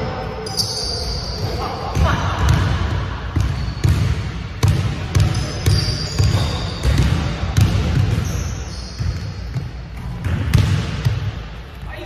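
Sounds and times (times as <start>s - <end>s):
sneakers squeaking: 0.0s - 12.0s
basketball bouncing on wood floor: 1.9s - 11.4s.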